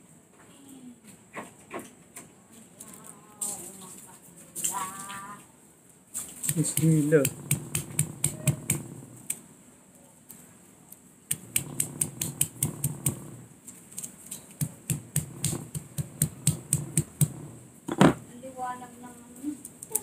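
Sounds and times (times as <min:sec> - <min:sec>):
pestle tapping nut shell: 0:06.4 - 0:09.4, 0:11.3 - 0:13.4, 0:14.0 - 0:18.2.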